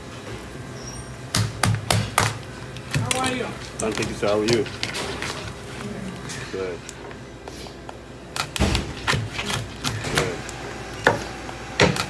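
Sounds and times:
knife chopping lobster shell: 0:01.3 - 0:05.2.

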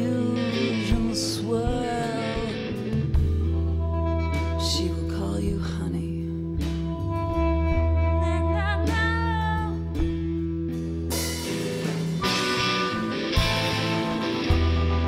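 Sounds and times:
live band playing: 0:00.0 - 0:15.0
harmonica line: 0:12.2 - 0:15.0.

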